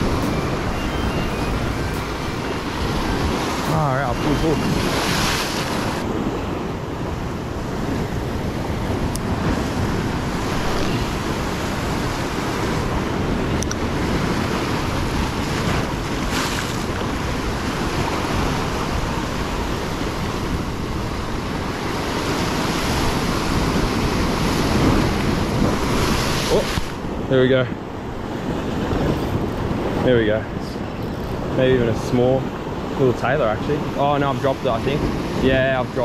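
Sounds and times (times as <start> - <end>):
surf breaking over rocks: 0.0 - 6.2
wind buffeting microphone: 0.0 - 36.0.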